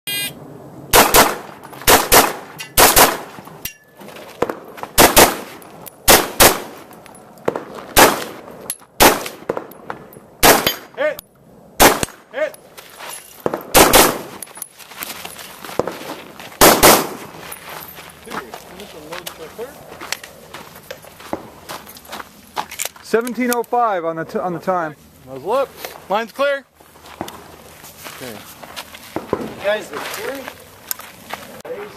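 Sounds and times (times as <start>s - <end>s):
rifle shots in quick pairs: 0.9s - 3.4s, 4.4s - 6.8s, 7.5s - 9.7s, 10.4s - 10.9s, 11.8s - 12.2s, 13.4s - 14.4s, 16.6s - 17.3s.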